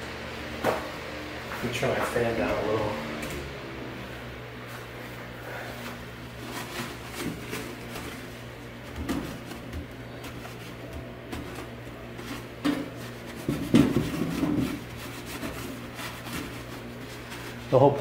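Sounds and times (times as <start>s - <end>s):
steady fan hum: 0.0s - 18.0s
knocks and scrapes of handling: 5.5s - 18.0s.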